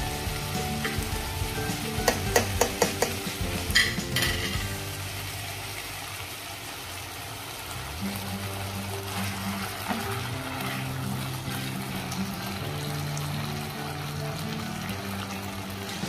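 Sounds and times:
chicken sizzling in a frying pan: 0:00.0 - 0:16.0
spoon clicking against pan: 0:02.0 - 0:03.2
spoon scraping pan: 0:02.1 - 0:04.8, 0:09.0 - 0:12.6.

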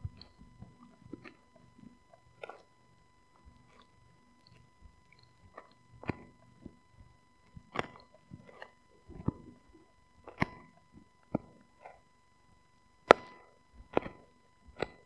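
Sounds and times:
dog gnawing a bone: 0:00.2 - 0:02.8, 0:03.4 - 0:06.8, 0:07.6 - 0:12.0.

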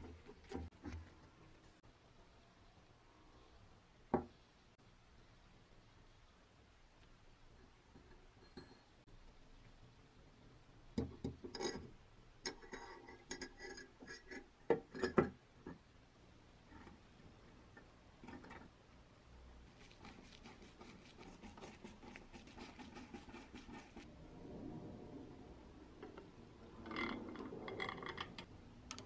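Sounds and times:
fast light ticks and scratches: 0:19.7 - 0:24.1.

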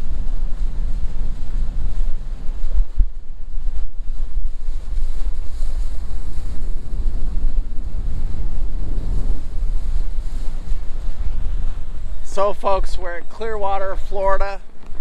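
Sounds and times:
wind buffeting microphone: 0:00.0 - 0:15.0
water rushing past boat bow: 0:08.1 - 0:15.0.

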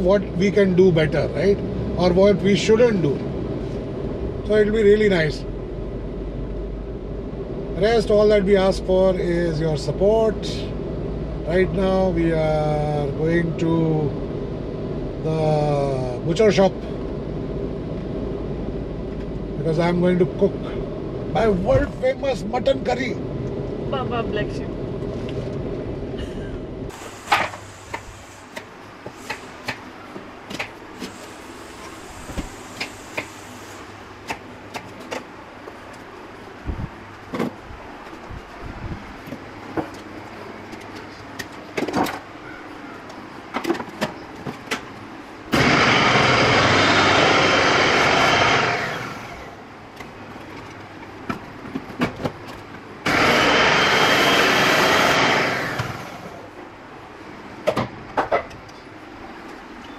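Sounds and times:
food processor motor running: 0:45.5 - 0:49.6, 0:53.0 - 0:56.5.

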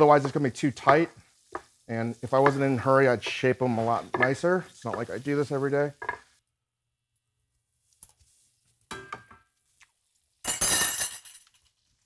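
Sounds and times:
metal utensil clinking on cookware: 0:10.4 - 0:11.6.

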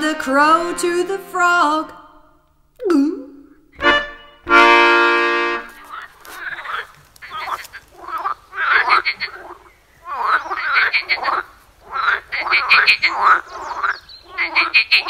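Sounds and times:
band holding a chord: 0:00.0 - 0:02.3, 0:03.8 - 0:05.8
frog croaking: 0:05.9 - 0:15.0.

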